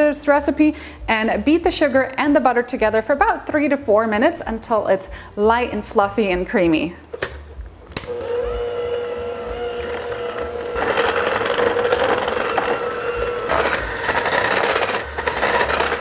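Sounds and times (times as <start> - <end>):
electric hand mixer whining: 8.1 - 16.0.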